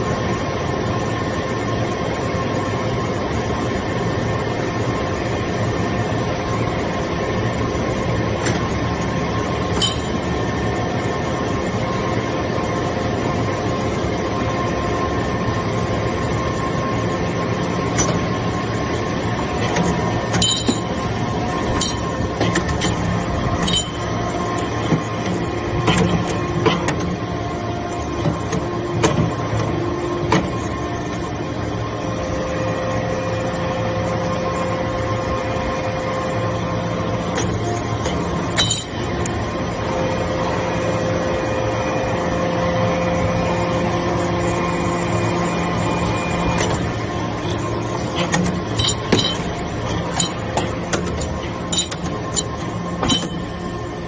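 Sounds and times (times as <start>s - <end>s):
hydraulic pump humming: 0.0s - 54.0s.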